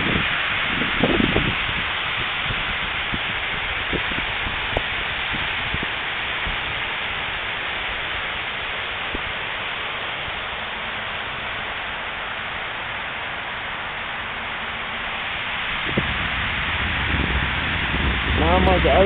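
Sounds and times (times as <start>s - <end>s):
fountain water splashing into pool: 0.0s - 19.0s.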